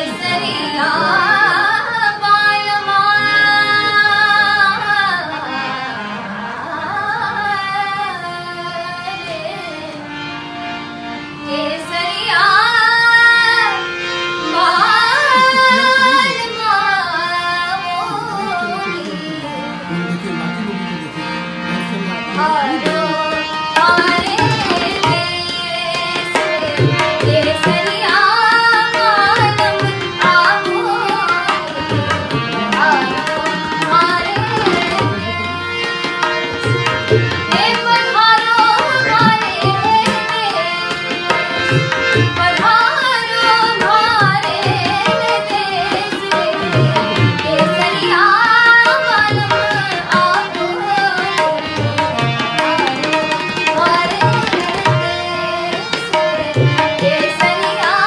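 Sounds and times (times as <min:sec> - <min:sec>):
girl singing: 0:00.0 - 0:05.3, 0:06.6 - 0:09.9, 0:11.5 - 0:13.9, 0:22.4 - 0:35.7, 0:37.5 - 0:51.9, 0:52.7 - 0:58.0
harmonium: 0:00.0 - 0:58.0
tabla strokes: 0:23.6 - 0:58.0.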